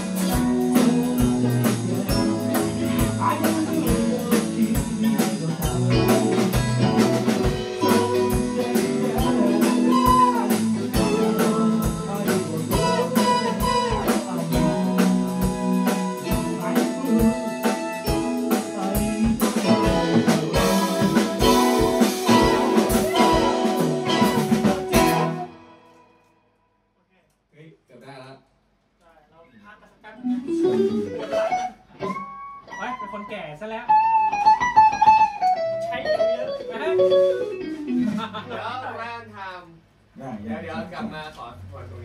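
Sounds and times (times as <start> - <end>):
drum kit beat: 0.0 - 25.9, 34.0 - 38.6
keyboard: 0.0 - 26.0
electric guitar: 0.0 - 26.1, 30.2 - 38.6
saxophone: 5.9 - 26.3.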